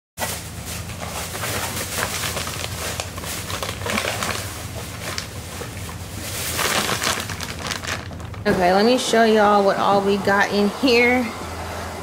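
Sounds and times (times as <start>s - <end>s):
plastic bags rustling: 0.2s - 9.0s
low steady hum: 0.2s - 12.0s.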